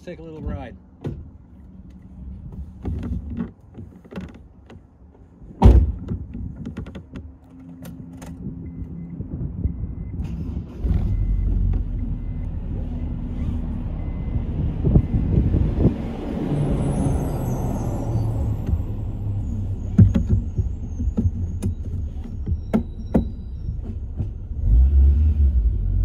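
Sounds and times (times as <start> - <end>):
car engine rumble: 0.0 - 26.0
heavy thud: 5.6 - 6.3.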